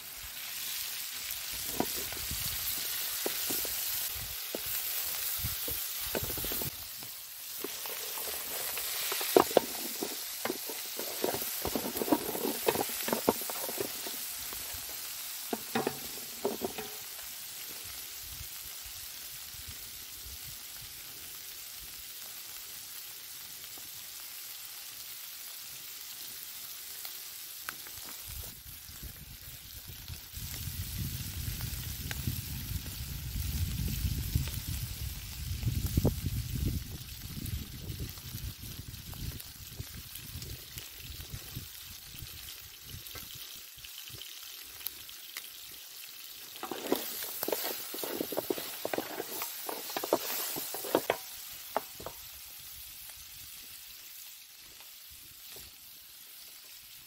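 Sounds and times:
chicken sizzling in metal pan: 0.0 - 57.0
spatula scraping against pan: 7.6 - 14.9, 15.5 - 17.0, 46.6 - 52.1.

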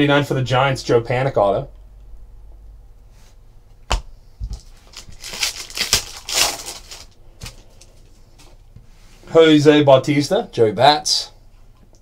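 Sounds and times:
foil pack tearing and crinkling: 4.5 - 8.1.

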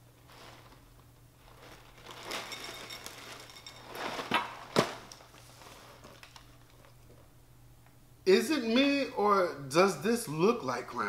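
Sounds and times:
plastic bag and cardboard crinkling: 0.0 - 7.3.

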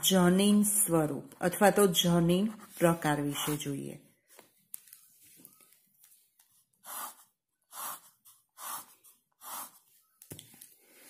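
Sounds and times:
pen swishing across paper: 2.3 - 3.8, 6.8 - 9.9.

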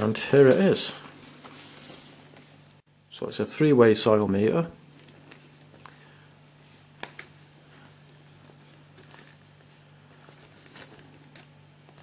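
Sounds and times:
plastic blister pack rustling: 0.0 - 2.8, 6.6 - 12.0
low steady hum: 0.0 - 12.0.

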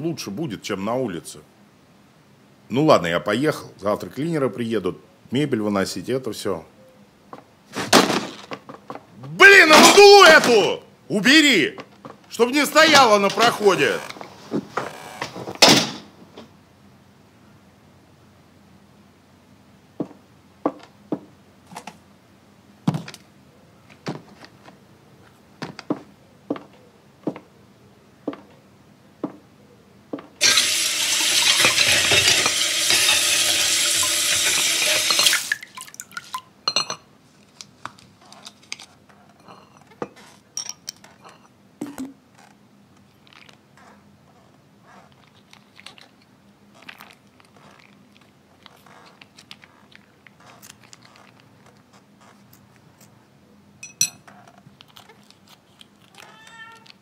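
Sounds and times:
footsteps on wooden floor: 25.6 - 27.5
plates clinking: 30.4 - 37.1, 39.4 - 42.2, 53.8 - 54.3
small handling sounds: 37.2 - 53.3, 54.0 - 57.0.

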